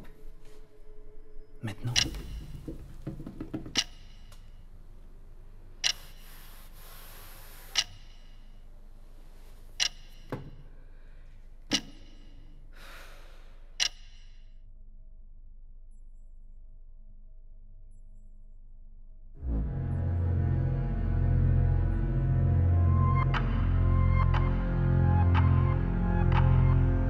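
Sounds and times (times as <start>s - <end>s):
faint hiss: 5.8s - 8.6s.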